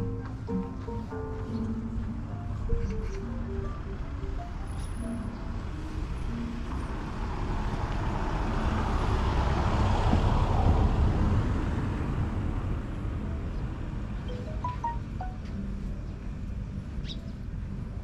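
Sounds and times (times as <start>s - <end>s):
vehicle passing by: 1.0s - 14.6s.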